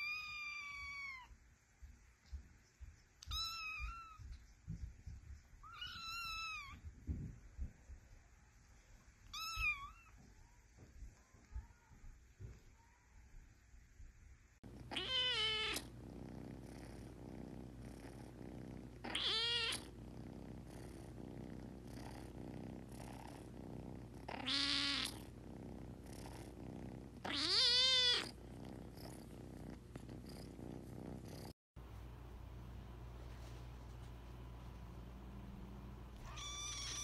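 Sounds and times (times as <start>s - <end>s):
steady purr: 14.6s - 37.0s
kittens meowing: 14.9s - 15.9s, 19.0s - 19.8s, 27.2s - 28.3s, 36.2s - 37.0s.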